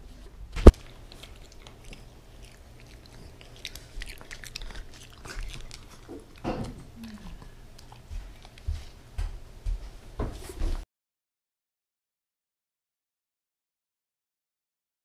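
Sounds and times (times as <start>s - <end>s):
dog sniffing and mouthing: 0.6s - 9.2s.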